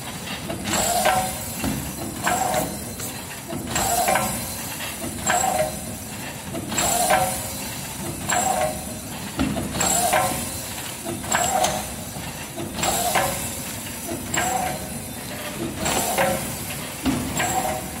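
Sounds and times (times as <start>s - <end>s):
machine mechanisms clacking: 0.0s - 18.0s
mechanical running noise: 0.0s - 18.0s
pneumatic air hiss: 9.8s - 17.9s.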